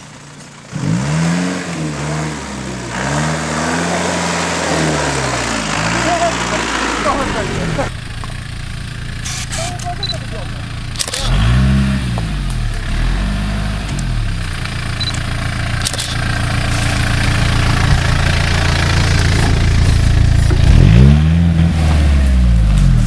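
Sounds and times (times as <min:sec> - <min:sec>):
car engine revving under load: 0:00.0 - 0:23.0.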